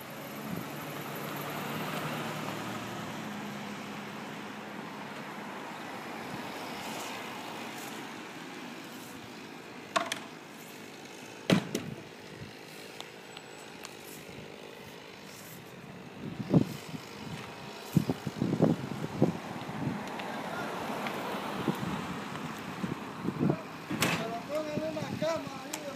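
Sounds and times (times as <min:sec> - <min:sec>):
motor humming: 0:08.8 - 0:19.4
sharp knocks: 0:09.9 - 0:10.3.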